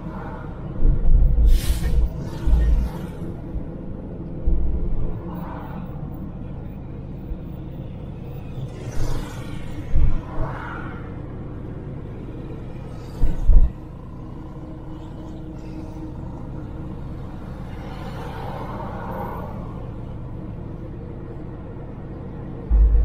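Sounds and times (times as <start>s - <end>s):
car engine and road rumble: 0.0s - 23.0s
heavy low thumps: 22.7s - 23.0s.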